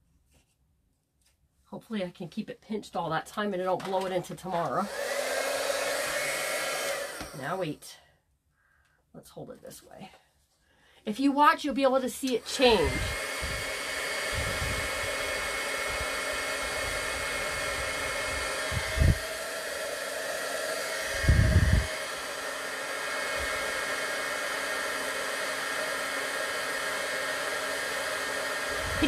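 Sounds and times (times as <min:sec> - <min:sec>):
heat gun blowing with high whine: 0:04.7 - 0:07.6, 0:12.2 - 0:29.0.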